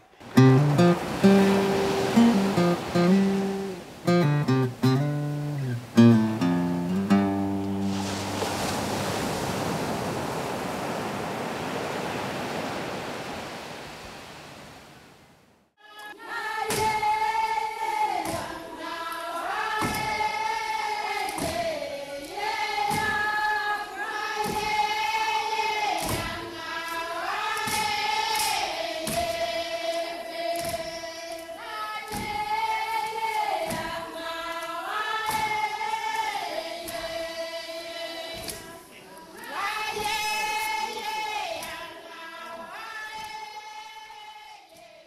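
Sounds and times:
group of voices singing: 0:00.0 - 0:06.5, 0:15.8 - 0:45.0.

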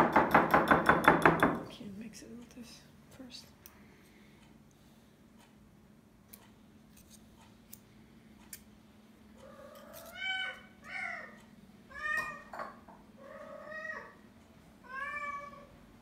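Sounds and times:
cat meowing: 0:09.4 - 0:12.6, 0:13.2 - 0:14.2, 0:14.8 - 0:15.7.

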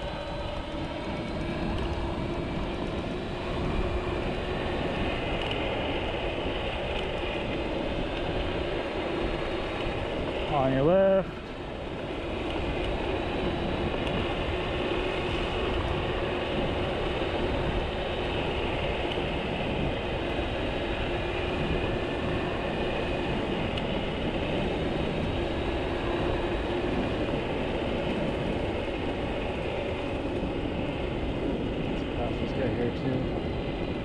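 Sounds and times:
wind rush on microphone: 0:00.0 - 0:34.0.

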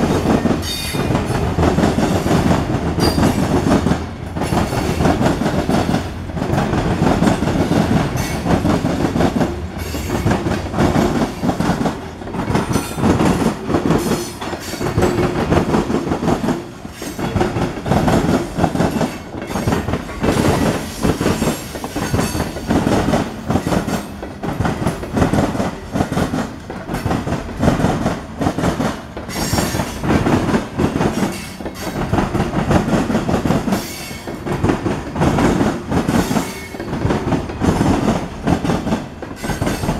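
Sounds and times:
train wheels clattering over rail joints: 0:00.0 - 0:39.9.

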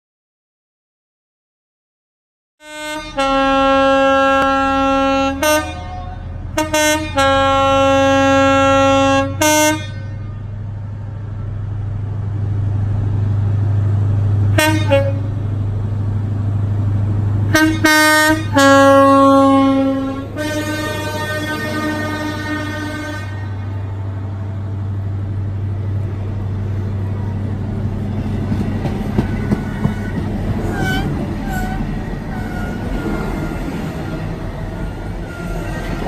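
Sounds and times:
two-tone train horn: 0:02.6 - 0:10.5, 0:14.5 - 0:15.4, 0:17.5 - 0:24.4, 0:29.3 - 0:33.9, 0:34.8 - 0:36.0
diesel engine hum: 0:03.1 - 0:36.0.

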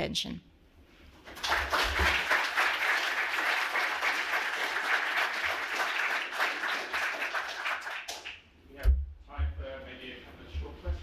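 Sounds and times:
audience applauding: 0:01.2 - 0:08.4.

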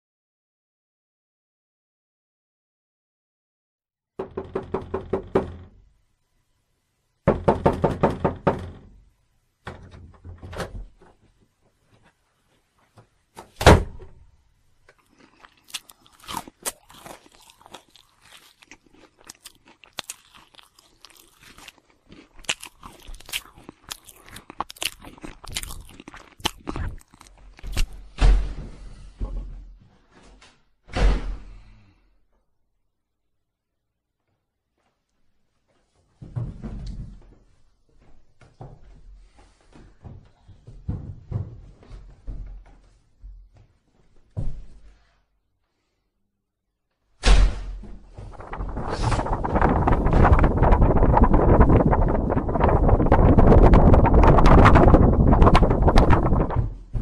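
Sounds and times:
rapid rattling knocks: 0:04.2 - 0:05.9, 0:07.3 - 0:09.0, 0:48.2 - 0:57.0.

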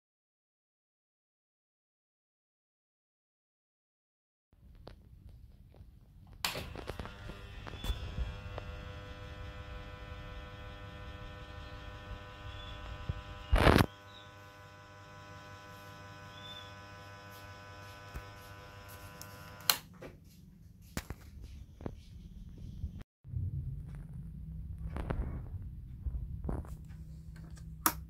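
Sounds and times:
ceiling fan motor humming: 0:06.5 - 0:19.8.

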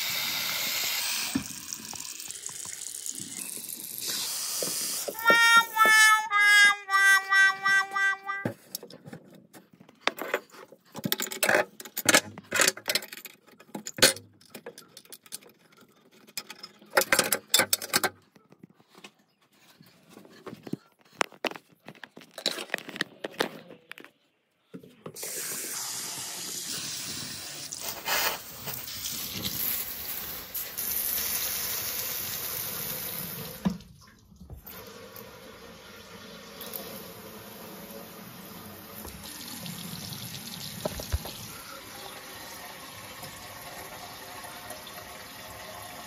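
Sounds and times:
tap running into basin: 0:01.2 - 0:06.1, 0:38.5 - 0:46.0.

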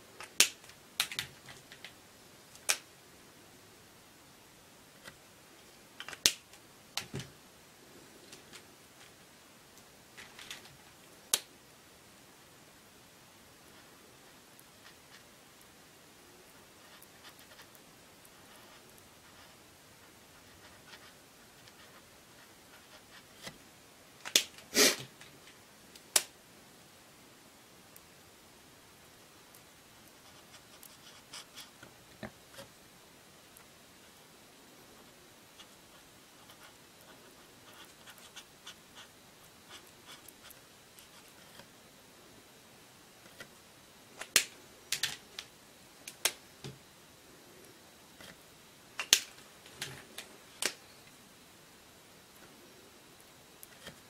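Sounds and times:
marker scratching on paper: 0:35.6 - 0:39.1.

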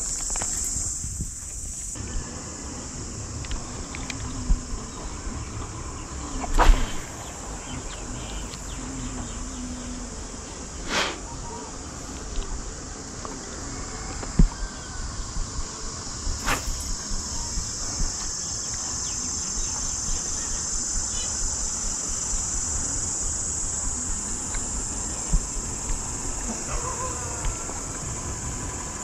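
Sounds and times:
high-pitched insect chorus: 0:00.0 - 0:29.0
sharp click: 0:06.4 - 0:07.1, 0:16.4 - 0:17.0.

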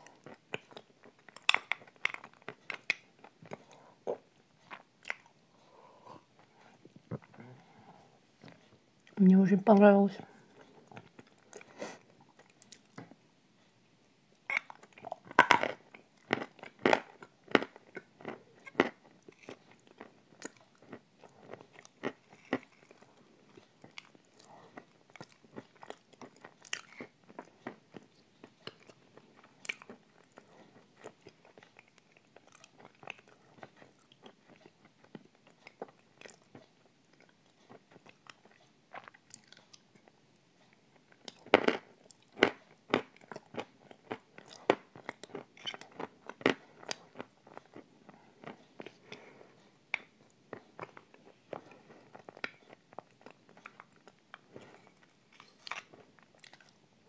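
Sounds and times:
wet mouth smacks and chewing: 0:00.1 - 0:05.4, 0:14.4 - 0:40.1, 0:41.0 - 0:47.8, 0:49.9 - 0:56.8.

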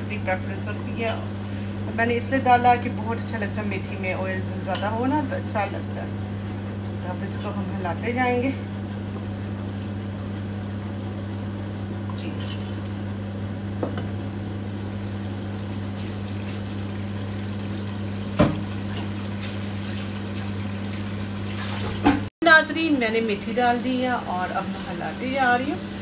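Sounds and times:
sauce bubbling in a pot: 0:08.6 - 0:22.2.

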